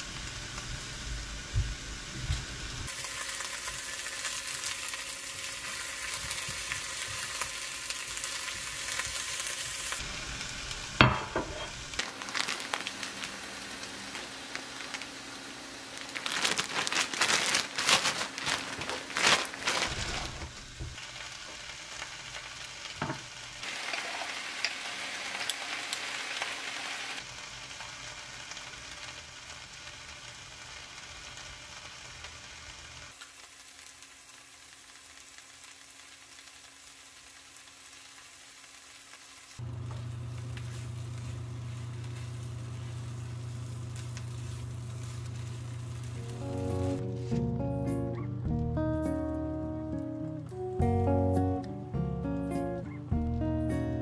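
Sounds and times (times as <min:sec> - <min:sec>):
onions sizzling in a frying pan: 0:00.0 - 0:47.6, 0:49.1 - 0:54.0
plastic bag crinkling: 0:12.0 - 0:21.0, 0:40.3 - 0:47.4.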